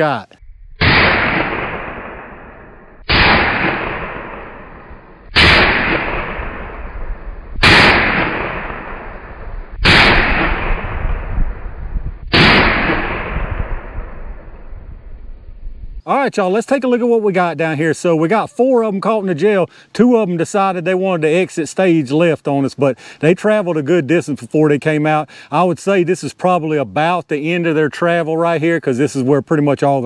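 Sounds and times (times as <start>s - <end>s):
pistol gunshots with echo: 0.8s - 11.4s, 12.3s - 14.2s.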